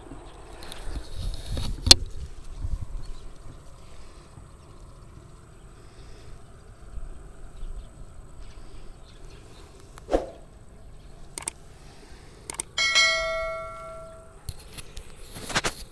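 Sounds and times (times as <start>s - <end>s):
sharp mouse clicks: 11.3s - 11.6s, 12.5s - 12.8s
bell-like ding: 12.8s - 14.4s.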